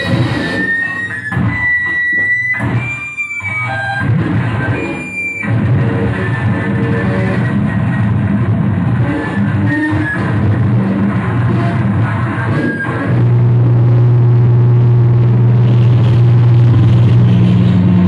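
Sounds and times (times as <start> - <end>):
high whistling guitar tones: 0.0 - 8.0, 8.8 - 13.6
distorted electric guitar: 0.0 - 18.0.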